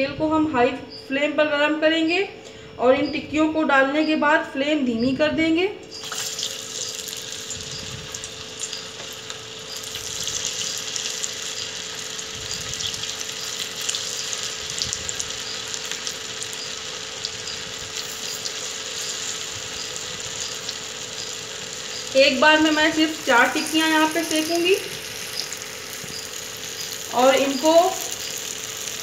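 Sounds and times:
patties deep-frying in oil: 5.9 - 29.0
sizzle with fine crackling: 5.9 - 29.0.

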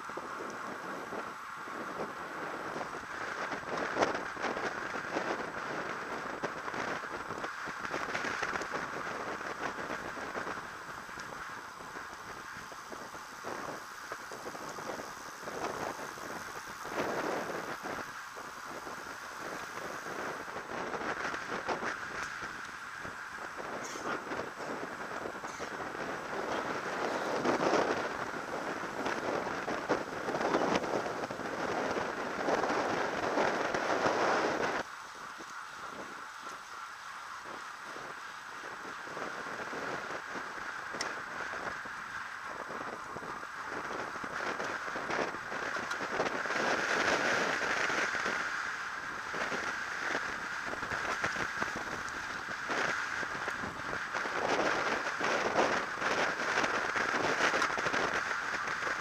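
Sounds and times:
faint ticks and crackles: 0.0 - 59.0
tyre and road noise: 0.0 - 59.0
wind rushing over microphone: 0.0 - 59.0.

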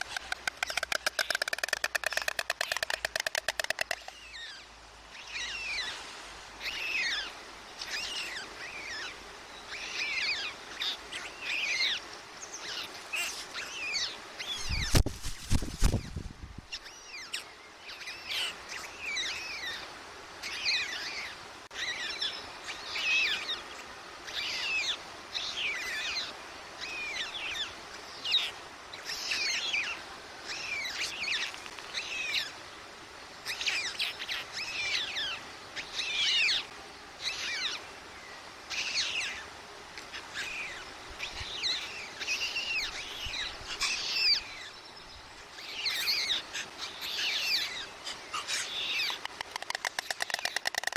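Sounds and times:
small birds chirping: 0.0 - 6.0, 33.4 - 50.9.

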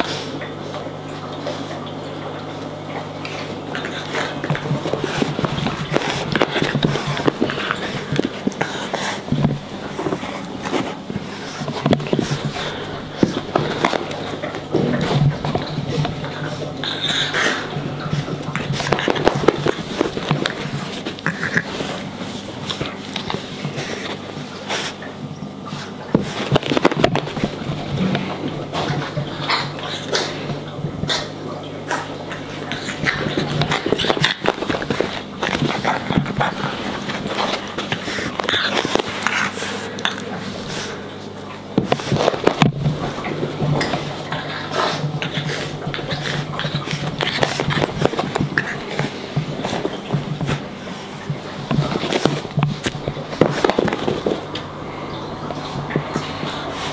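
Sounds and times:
puppy scuffling: 0.0 - 56.9.

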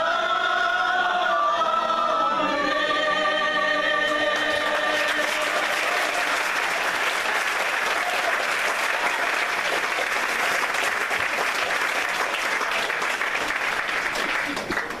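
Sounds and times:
congregation applauding: 4.1 - 15.0.

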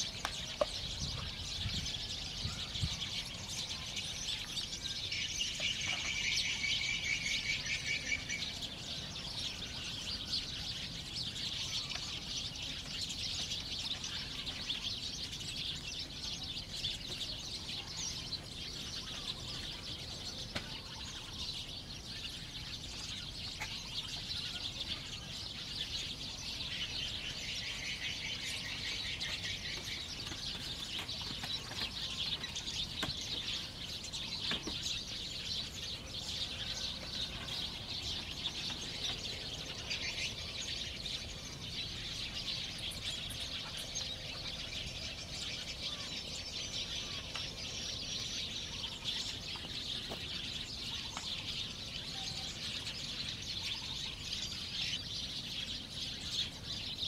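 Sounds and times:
birds chirping and calling: 0.0 - 57.0.

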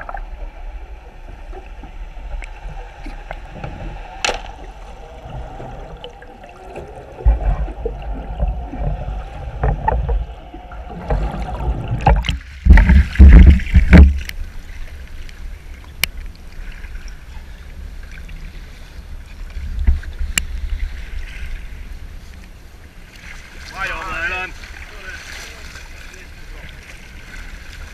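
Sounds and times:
muffled underwater water sound: 0.0 - 27.9
waves slapping a boat hull: 0.0 - 27.9
wind: 0.0 - 27.9
loud water splashing: 2.8 - 14.3, 23.2 - 27.9.

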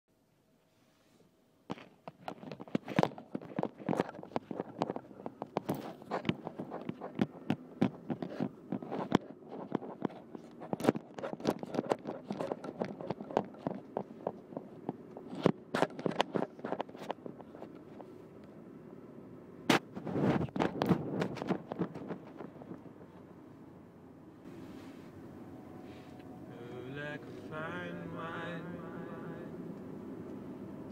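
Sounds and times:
faint hum: 0.1 - 30.9
phone handling clicks and rubbing: 1.7 - 18.2.

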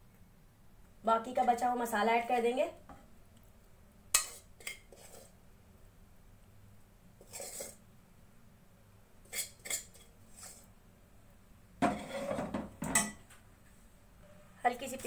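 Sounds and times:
spoon scraping cooking pot: 4.2 - 5.4, 7.2 - 7.8, 9.2 - 10.7, 11.8 - 13.1.

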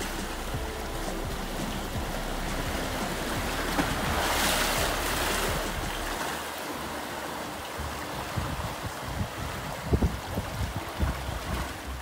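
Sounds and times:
sea waves washing onto shore: 0.0 - 12.0.

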